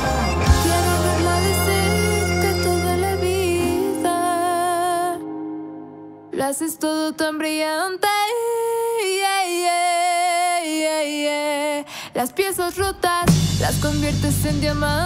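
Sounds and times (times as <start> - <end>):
person singing: 0.0 - 5.4, 6.3 - 15.0
pop band with bass: 0.0 - 5.7, 12.7 - 15.0.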